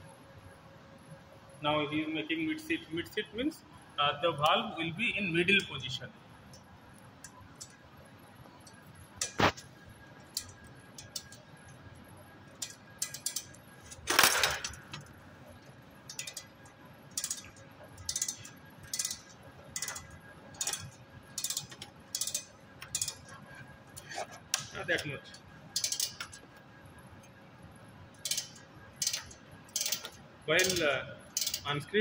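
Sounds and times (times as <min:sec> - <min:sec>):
metal clicks and clinks: 0:16.1 - 0:16.5, 0:25.8 - 0:26.4.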